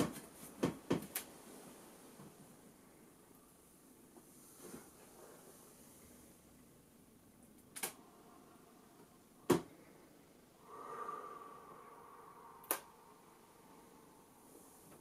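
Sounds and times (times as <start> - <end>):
sharp clicks: 7.6 - 8.0, 12.6 - 12.9.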